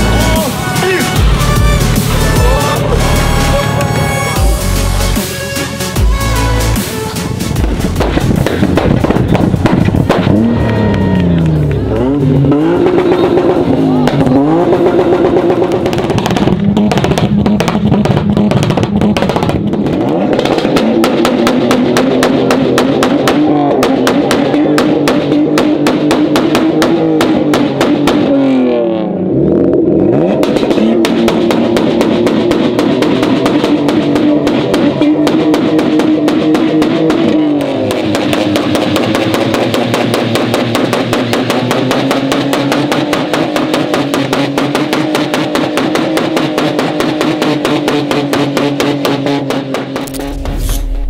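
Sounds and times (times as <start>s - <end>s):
pitch sweeps: 0.0s - 8.5s, 50.1s - 51.0s
fast steady beat music: 0.0s - 10.4s.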